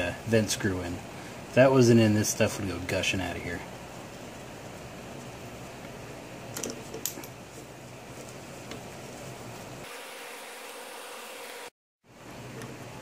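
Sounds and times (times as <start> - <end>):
steady background hum: 0.0 - 9.9.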